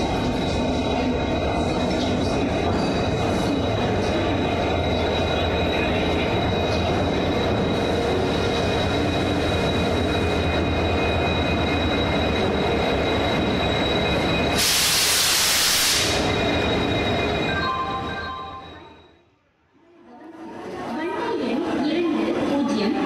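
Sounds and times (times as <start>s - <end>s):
loud hiss: 14.6s - 16.3s.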